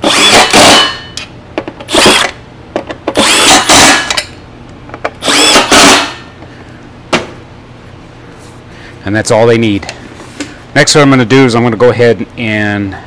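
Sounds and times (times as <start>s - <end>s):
cordless driver whining: 0.0s - 0.9s, 1.9s - 2.4s, 3.1s - 4.2s, 5.2s - 6.2s.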